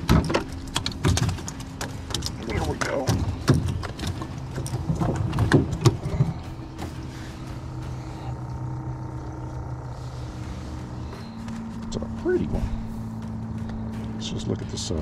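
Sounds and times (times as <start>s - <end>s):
sharp knocks and thumps: 0.0s - 7.2s
small motor humming: 3.2s - 14.2s.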